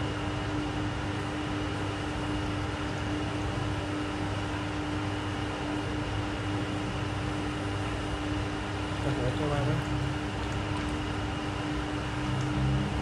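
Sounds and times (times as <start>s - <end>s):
water pump humming: 0.0s - 13.0s.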